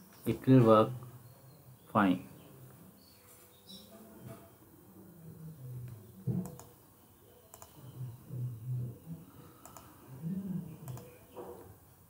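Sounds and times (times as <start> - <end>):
computer mouse clicks: 6.4 - 6.8, 7.5 - 7.8, 9.6 - 10.0, 10.8 - 11.2.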